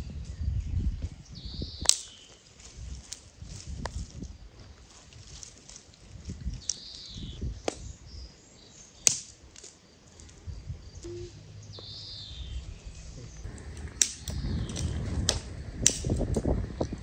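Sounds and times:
sharp branch snaps: 0:01.8 - 0:02.4, 0:09.0 - 0:09.8, 0:14.0 - 0:16.2
dry branches crackling: 0:01.8 - 0:07.8, 0:11.4 - 0:17.0
branches dragged over gravel: 0:02.3 - 0:07.0.

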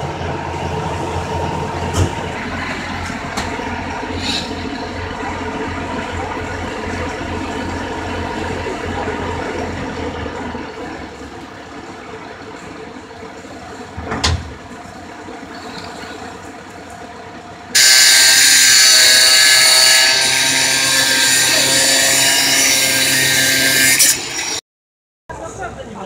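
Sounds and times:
angle grinder cutting metal: 0:02.6 - 0:07.7, 0:17.8 - 0:24.6.

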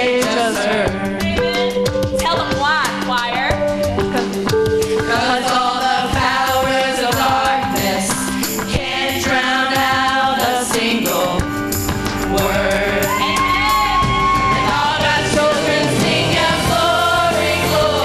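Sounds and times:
women singing gospel in harmony: 0:00.0 - 0:01.9, 0:04.9 - 0:11.6, 0:12.2 - 0:18.0
instrumental backing: 0:00.0 - 0:18.0.

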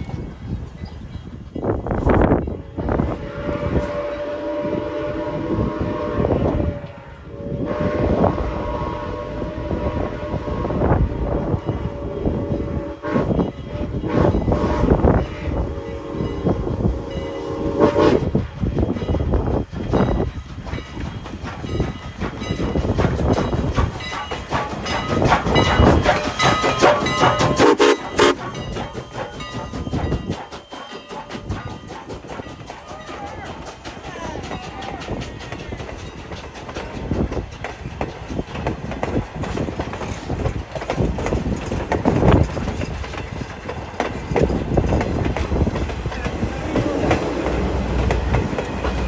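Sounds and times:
moving train rumble: 0:00.0 - 0:49.0
locomotive air horn blasts: 0:02.6 - 0:18.3, 0:26.8 - 0:28.4.

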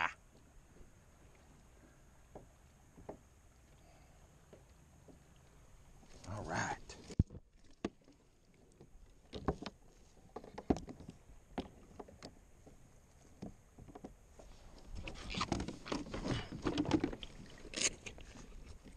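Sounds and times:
clatter and rustling: 0:15.0 - 0:18.4.

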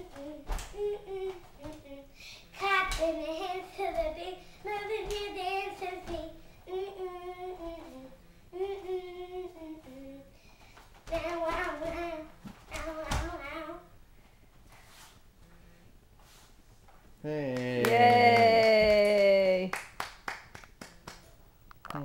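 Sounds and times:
girl singing unaccompanied: 0:00.0 - 0:14.0.

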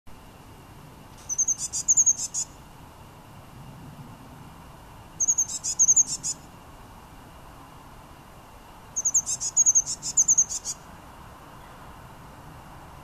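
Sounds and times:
blue tit singing: 0:01.2 - 0:02.6, 0:05.2 - 0:06.5, 0:09.0 - 0:10.8.

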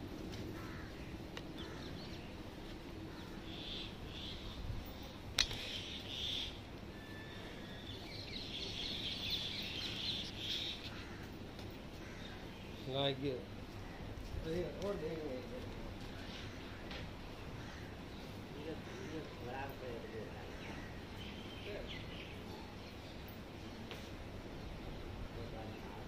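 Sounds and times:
outdoor background noise: 0:00.0 - 0:26.0
small birds chirping: 0:00.6 - 0:14.0, 0:20.4 - 0:26.0
sharp click: 0:05.4 - 0:05.6.

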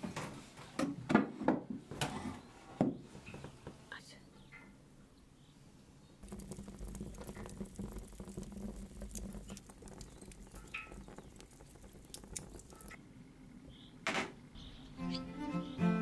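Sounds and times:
wood fire crackling and popping: 0:06.2 - 0:13.0.

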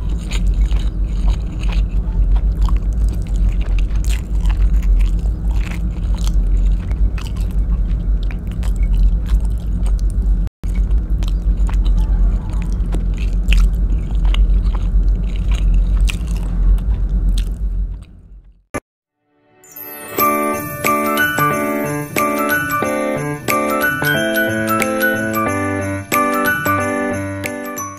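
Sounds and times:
close chewing and mouth sounds: 0:00.0 - 0:18.7
steady low rumble: 0:00.0 - 0:18.7.

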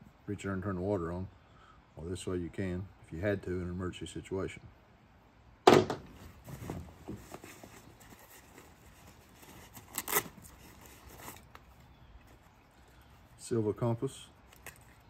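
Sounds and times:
sharp knock: 0:05.7 - 0:06.1
rustles and clicks: 0:06.0 - 0:12.6
rummaging in a nylon backpack: 0:06.2 - 0:11.6.

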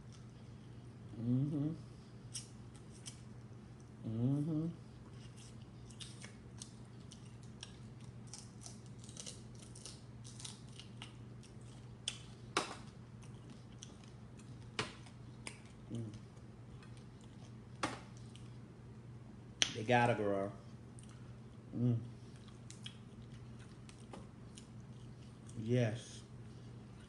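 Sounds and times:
steady low hum: 0:00.0 - 0:27.0
person murmuring: 0:01.1 - 0:01.9, 0:04.0 - 0:04.9, 0:15.9 - 0:16.2, 0:21.7 - 0:22.1
lip smacks: 0:05.2 - 0:08.1, 0:10.8 - 0:18.5, 0:22.3 - 0:25.6
chewing with wet mouth clicks: 0:05.2 - 0:19.8, 0:20.9 - 0:21.3, 0:22.2 - 0:25.6.

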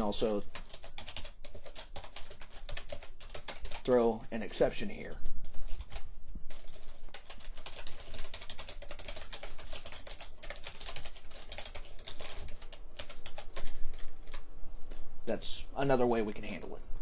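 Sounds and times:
fast typing on keyboard: 0:00.0 - 0:04.0, 0:05.4 - 0:14.4.

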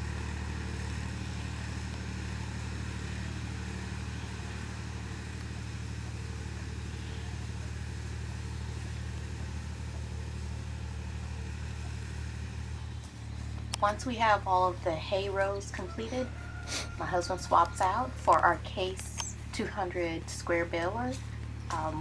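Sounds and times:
tractor engine running: 0:00.0 - 0:22.0.

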